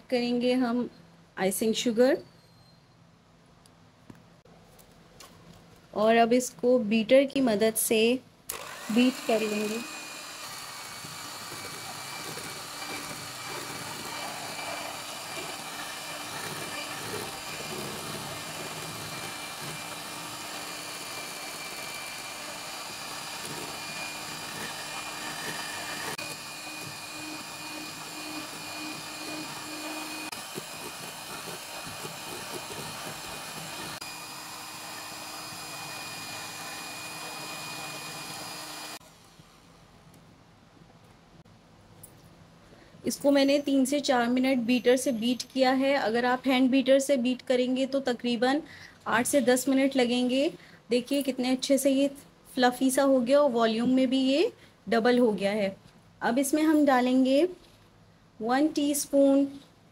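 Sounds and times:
electric hand mixer running: 0:08.5 - 0:39.0.

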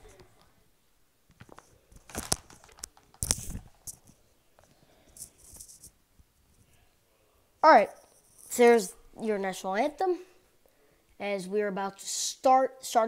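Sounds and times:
clothing rustling: 0:01.3 - 0:06.8.

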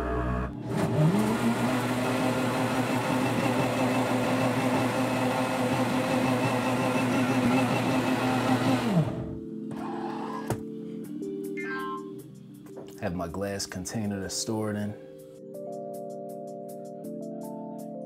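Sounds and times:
blender motor running: 0:00.1 - 0:10.6.

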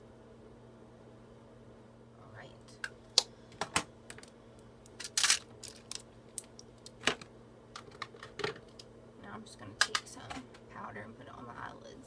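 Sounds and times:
makeup containers clicking and clattering: 0:07.8 - 0:08.8.

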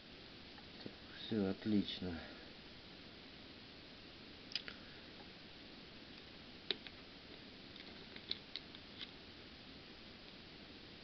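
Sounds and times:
low steady hiss: 0:00.0 - 0:11.0
small parts clicking and tapping: 0:06.2 - 0:07.0, 0:07.7 - 0:09.1.

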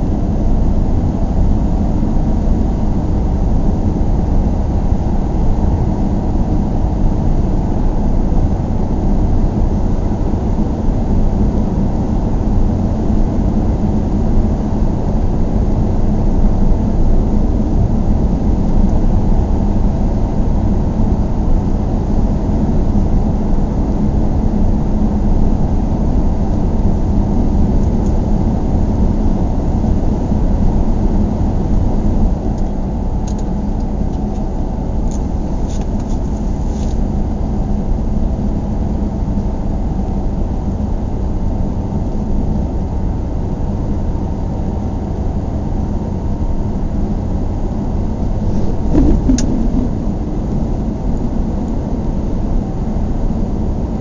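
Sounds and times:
car engine and tyre rumble: 0:00.0 - 0:54.0
bump: 0:48.5 - 0:50.1.

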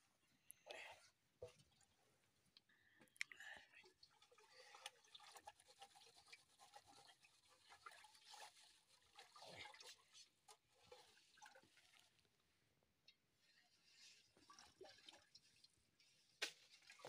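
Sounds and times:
liquid splashing in metal pot: 0:03.9 - 0:12.3.

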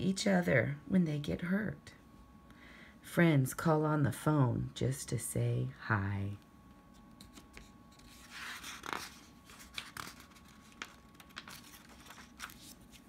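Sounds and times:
book page turning: 0:07.0 - 0:13.0.

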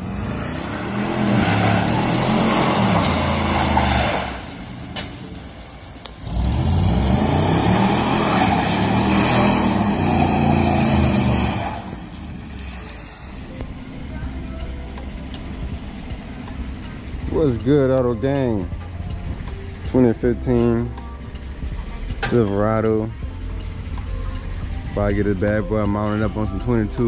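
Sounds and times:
car engine revving hard: 0:00.0 - 0:04.5, 0:06.2 - 0:12.0.

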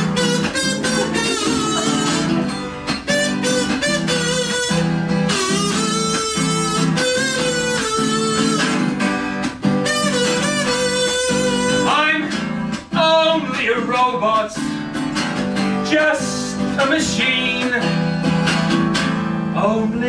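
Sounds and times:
person singing: 0:00.0 - 0:02.8, 0:11.6 - 0:14.6, 0:15.8 - 0:18.0
harmonica solo: 0:00.0 - 0:12.7
strummed acoustic guitar: 0:00.0 - 0:20.0.

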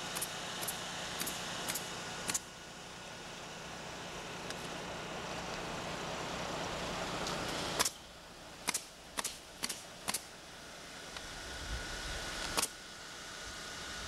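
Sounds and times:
heavy equipment engine running: 0:00.0 - 0:14.0
sharp clicks: 0:08.6 - 0:10.3.

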